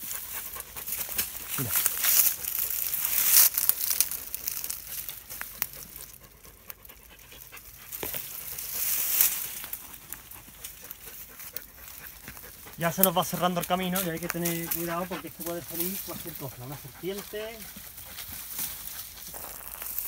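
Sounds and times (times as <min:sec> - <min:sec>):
palm fronds and brush rustling: 0:00.0 - 0:20.0
twigs snapping: 0:00.9 - 0:06.1.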